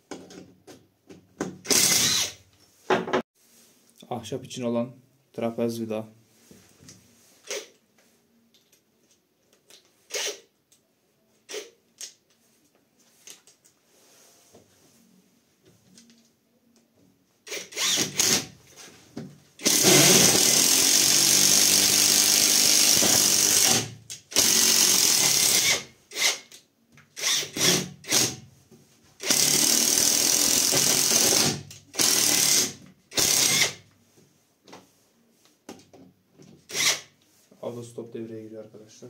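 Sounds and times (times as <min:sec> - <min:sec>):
impact wrench driving screw: 0:01.5 - 0:02.4, 0:17.5 - 0:18.5, 0:19.6 - 0:28.4, 0:29.2 - 0:33.8, 0:36.7 - 0:37.1.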